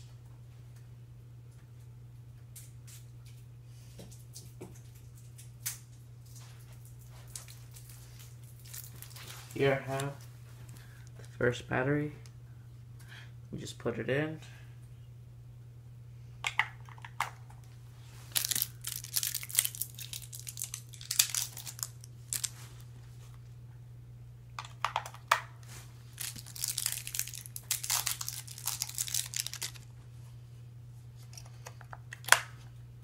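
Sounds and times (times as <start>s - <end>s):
steady low hum: 0.0s - 33.0s
plastic crinkling and rustling: 6.2s - 10.8s, 18.1s - 23.0s, 25.6s - 29.9s.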